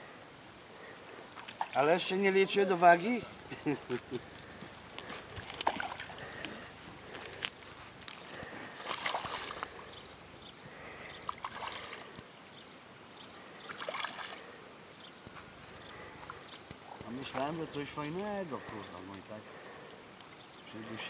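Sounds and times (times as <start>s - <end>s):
fish splashing at water surface: 5.4s - 6.3s, 8.8s - 9.8s, 11.3s - 12.1s.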